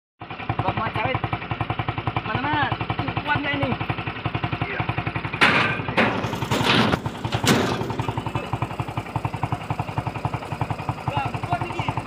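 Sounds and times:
motorcycle engine idling: 0.2s - 12.0s
fruit thudding into metal bed: 5.4s - 8.5s.

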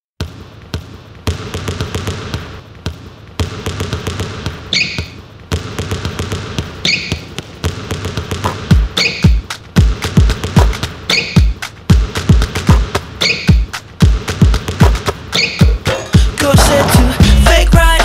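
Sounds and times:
high squeaks: 4.7s - 5.2s, 6.8s - 7.3s, 8.9s - 9.5s, 11.0s - 11.6s, 13.2s - 13.8s, 15.3s - 16.1s
deep bass beat: 8.2s - 15.1s, 15.7s - 18.0s.

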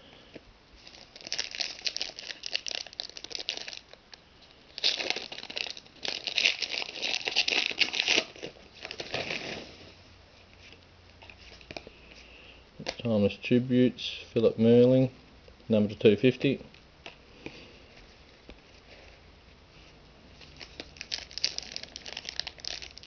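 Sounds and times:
foil wrapper crinkling and tearing: 0.8s - 4.1s, 4.7s - 9.7s, 20.4s - 23.0s.

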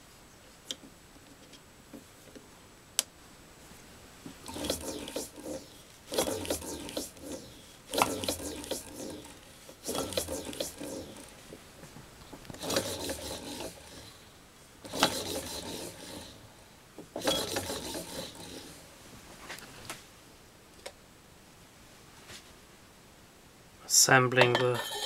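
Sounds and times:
metal parts rubbing and scraping: 4.4s - 11.5s, 12.6s - 14.2s, 14.9s - 16.5s, 17.2s - 18.8s, 24.6s - 25.0s.

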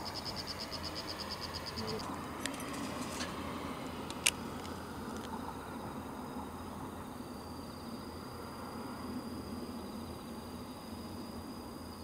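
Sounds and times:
insect trilling: 0.0s - 2.2s.

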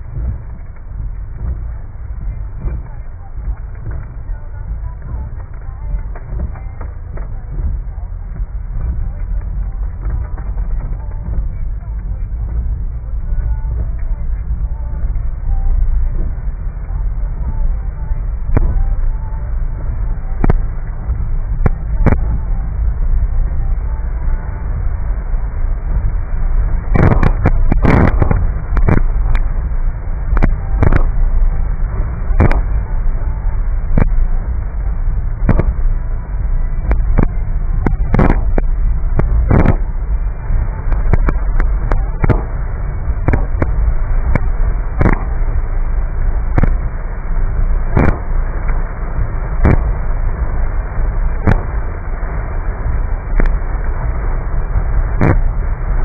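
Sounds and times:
windshield wipers knocking: 0.0s - 24.9s
rain on car: 0.0s - 56.0s
road and engine rumble: 0.0s - 56.0s.

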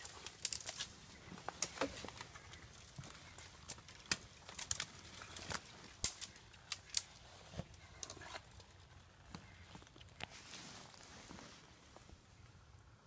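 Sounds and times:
twigs snapping underfoot: 0.0s - 8.7s
leaves crackling underfoot: 9.3s - 12.2s.

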